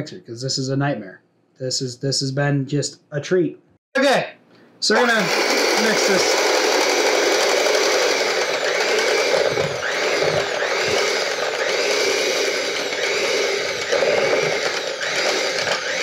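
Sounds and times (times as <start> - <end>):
electric hand mixer whipping butter: 4.9 - 16.0.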